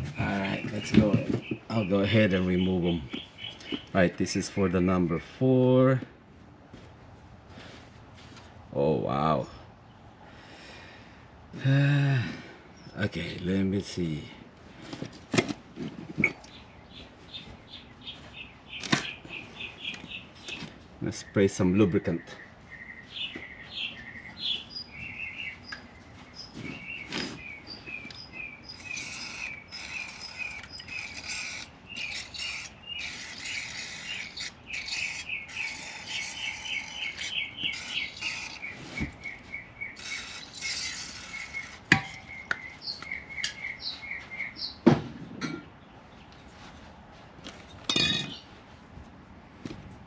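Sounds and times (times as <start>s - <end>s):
small bird chirping: 0.4s - 4.0s, 22.3s - 44.8s.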